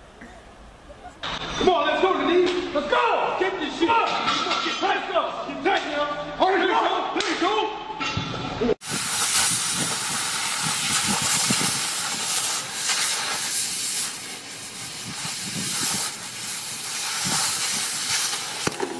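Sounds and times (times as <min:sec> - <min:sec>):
cutting torch hissing: 0:08.8 - 0:18.9
molten metal crackling: 0:08.8 - 0:18.9.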